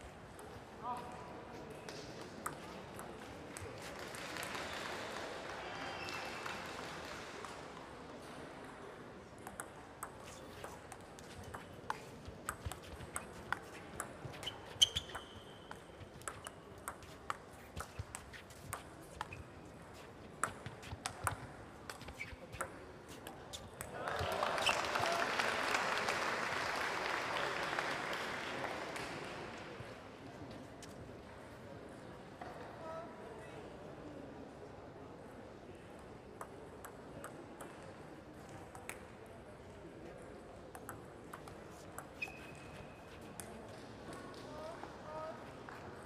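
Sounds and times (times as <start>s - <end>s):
crowd noise: 0.0s - 46.0s
table tennis ball clicks: 9.4s - 19.4s.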